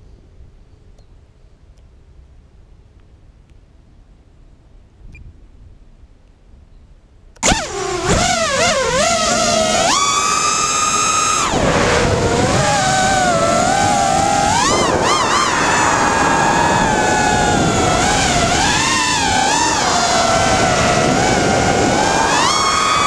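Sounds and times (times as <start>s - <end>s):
drone motors whining: 7.4s - 23.0s.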